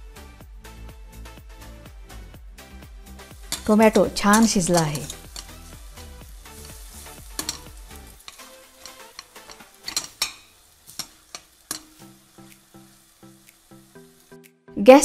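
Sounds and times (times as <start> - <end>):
light sizzle: 3.0 - 15.0
ladle clicking against pan: 3.4 - 3.7, 4.3 - 5.8, 6.6 - 12.6
ladle scraping tomatoes in pan: 3.4 - 14.2.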